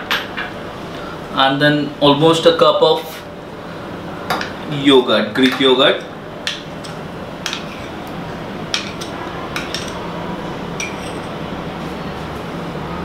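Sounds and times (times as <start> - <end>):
metal spoon clinking: 8.7 - 10.0, 10.8 - 11.4.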